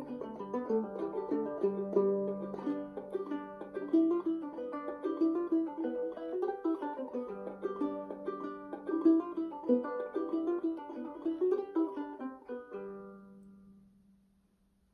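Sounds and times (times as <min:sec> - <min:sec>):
old-time fiddle tune: 0:00.0 - 0:13.1.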